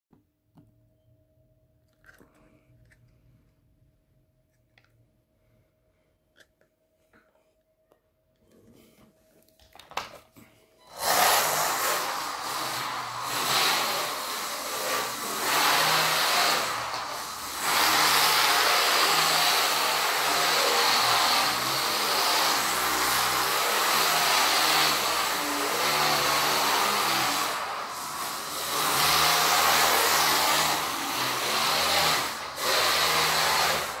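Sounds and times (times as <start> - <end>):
tyres hissing over wooden floor: 10.8 - 34.0
small electric motor whirring: 10.9 - 34.0.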